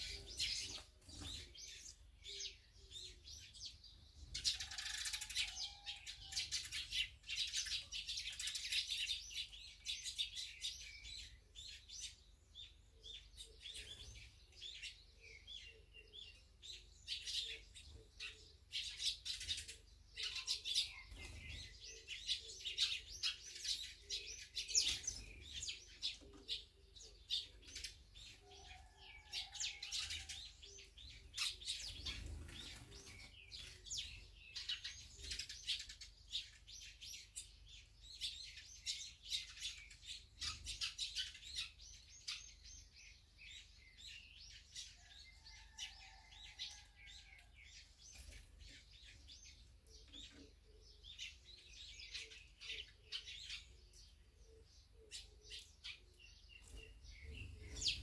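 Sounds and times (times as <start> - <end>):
sparrows chirping: 0.0 - 58.0.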